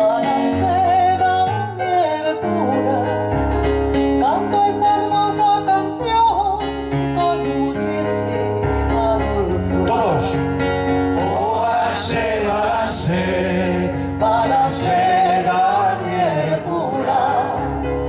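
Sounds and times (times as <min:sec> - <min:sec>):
woman singing: 0:00.0 - 0:03.3, 0:04.2 - 0:09.9
electric keyboard chords: 0:00.0 - 0:18.0.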